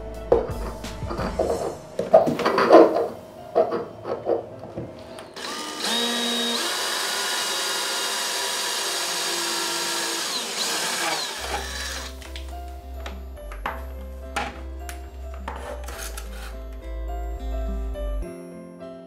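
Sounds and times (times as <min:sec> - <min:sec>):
power drill boring through tile: 0:05.4 - 0:12.2.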